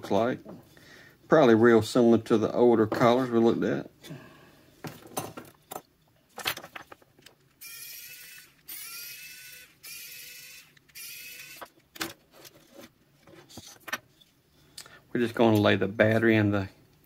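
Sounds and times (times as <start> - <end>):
electric screwdriver whining: 7.6 - 11.7.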